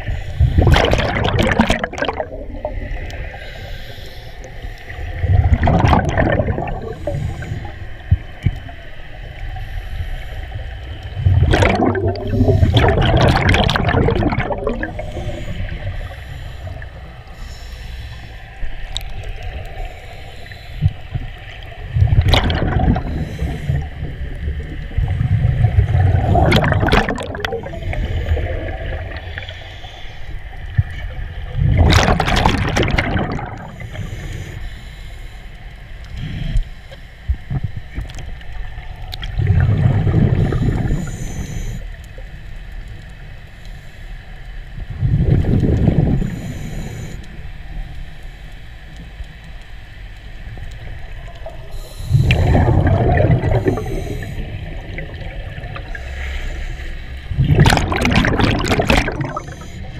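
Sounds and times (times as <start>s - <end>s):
underwater exhaled air bubbling: 0.0s - 34.9s, 36.0s - 42.5s, 44.6s - 48.0s, 50.1s - 59.9s
regulator hiss: 2.8s - 5.2s, 14.8s - 21.9s, 23.0s - 24.5s, 27.6s - 30.7s, 33.6s - 37.3s, 46.2s - 49.3s, 50.3s - 52.8s, 53.5s - 55.1s.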